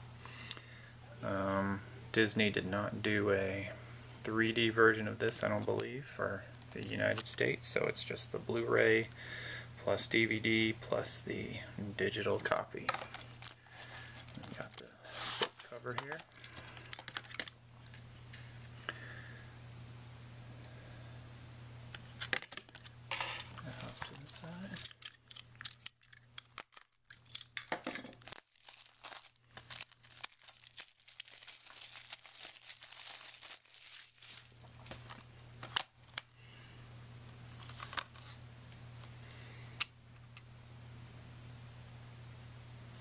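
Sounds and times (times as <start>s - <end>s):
steady low hum: 0.0s - 43.0s
plastic wrap crinkling: 13.0s - 18.0s, 23.6s - 36.3s, 37.3s - 38.4s.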